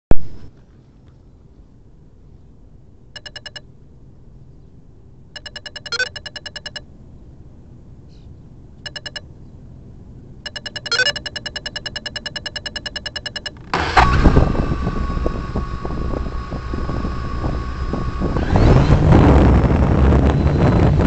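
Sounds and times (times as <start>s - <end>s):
rapid high electronic beeps: 3.2s - 3.6s, 5.4s - 6.8s, 8.9s - 9.2s, 10.5s - 13.6s.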